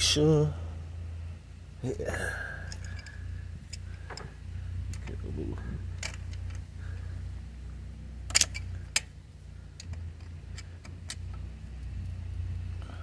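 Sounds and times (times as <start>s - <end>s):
low steady rumble: 0.0s - 13.0s
wrench clicking on a bolt: 8.3s - 9.1s, 9.8s - 11.3s.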